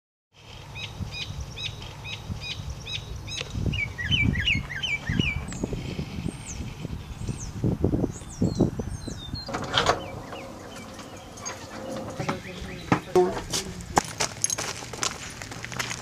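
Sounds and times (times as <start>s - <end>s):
birds singing and chirping: 0.7s - 14.0s
low rumble: 9.4s - 13.4s.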